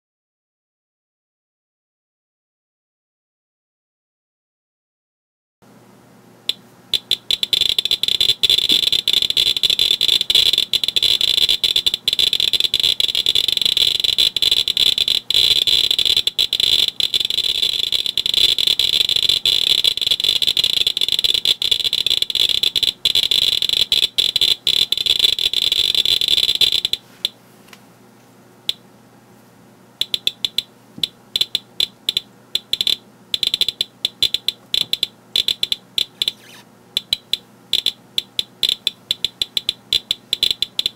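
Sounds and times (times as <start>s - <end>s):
geiger counter clicking: 6.5s - 27.4s, 30.0s - 40.9s.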